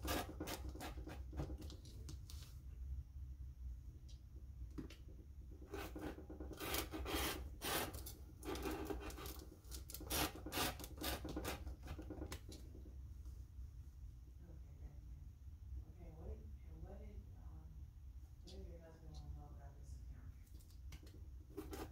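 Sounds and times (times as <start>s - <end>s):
rotary cutter scraping through fabric: 5.7s - 9.3s, 10.0s - 11.6s.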